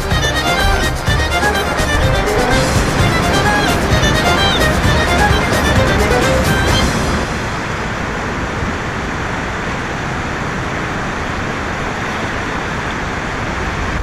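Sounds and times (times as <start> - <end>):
river rushing: 0.0 - 14.0.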